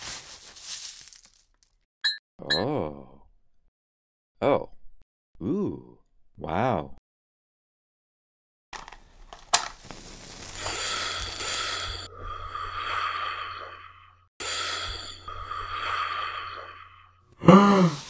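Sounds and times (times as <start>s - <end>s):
hissing breaths in and out: 10.0s - 18.0s.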